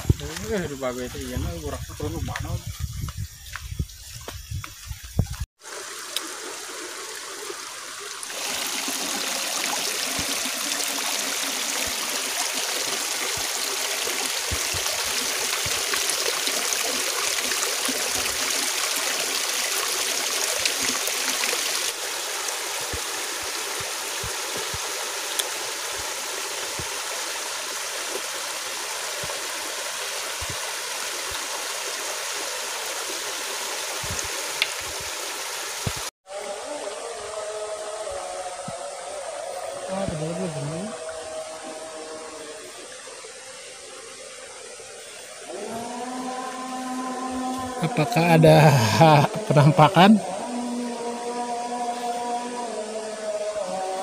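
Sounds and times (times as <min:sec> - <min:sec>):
stream splashing over stones: 0:00.0 - 0:36.1.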